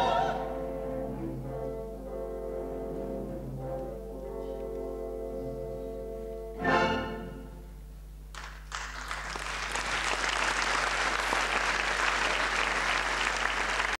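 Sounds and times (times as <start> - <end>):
audience applause: 8.3 - 14.0.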